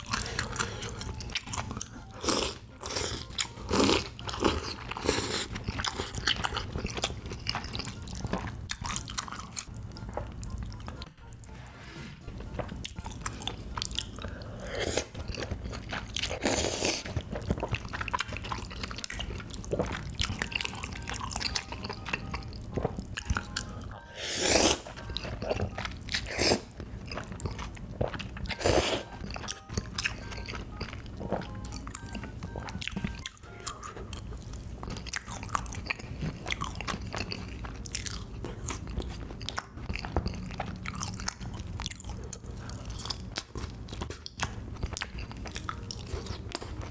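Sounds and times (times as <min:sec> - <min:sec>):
wet chewing and mouth clicks: 0:24.6 - 0:46.9.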